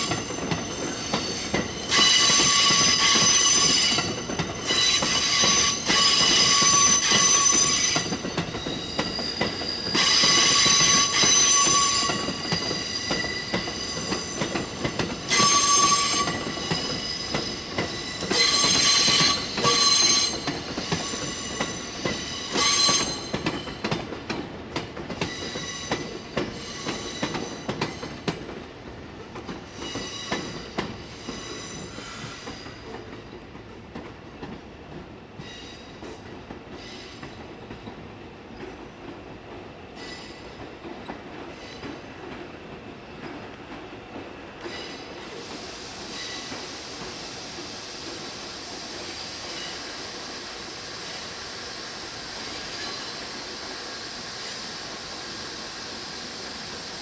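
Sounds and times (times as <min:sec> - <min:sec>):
train wheels squealing: 0:00.0 - 0:28.5, 0:29.4 - 0:33.6, 0:35.4 - 0:38.9, 0:39.9 - 0:42.2, 0:44.6 - 0:57.0
train rolling noise: 0:00.0 - 0:57.0.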